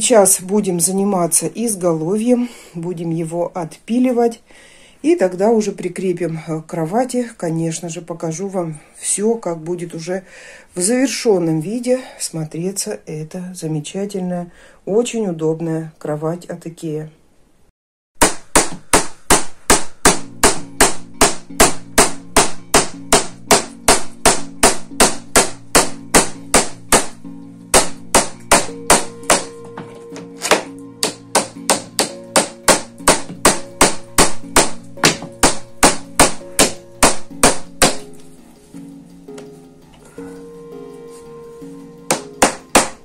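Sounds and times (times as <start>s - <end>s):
background music: 0.0s - 11.8s, 19.2s - 43.0s
hammer tapping on wood: 18.2s - 27.2s, 27.8s - 38.0s, 42.1s - 43.0s.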